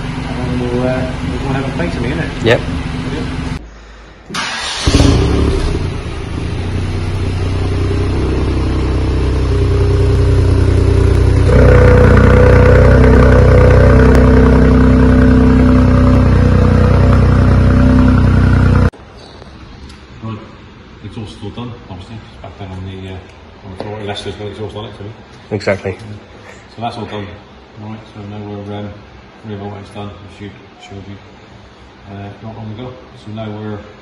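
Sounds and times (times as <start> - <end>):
car engine revving and idling: 0.0 - 3.6, 4.4 - 19.0.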